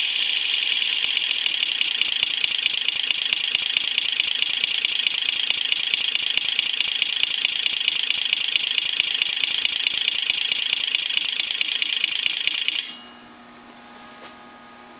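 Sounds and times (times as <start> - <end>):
relays clicking rapidly: 0.0 - 12.8.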